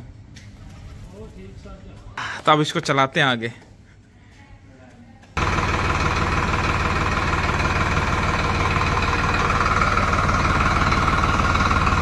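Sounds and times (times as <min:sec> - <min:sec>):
tractor diesel engine running: 0:05.4 - 0:12.0.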